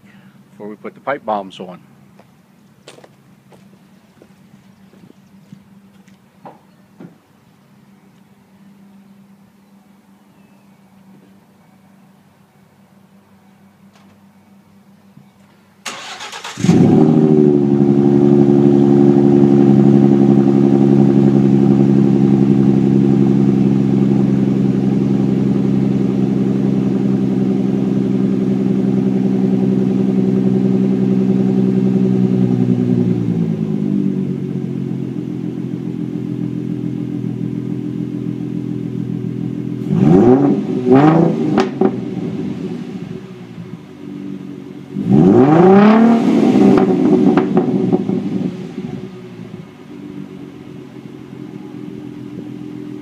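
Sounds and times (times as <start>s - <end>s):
car engine idling: 0.0s - 10.2s, 13.1s - 53.0s
car engine cranking: 15.8s - 17.8s
engine revving: 15.9s - 35.1s, 39.3s - 43.3s, 44.8s - 49.5s.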